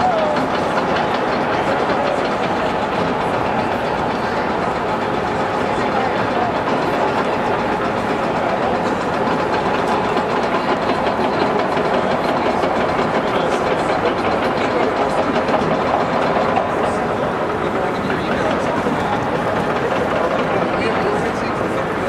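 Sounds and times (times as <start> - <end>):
diesel engine running: 0.0 - 22.0
steel tracks clattering: 0.0 - 22.0.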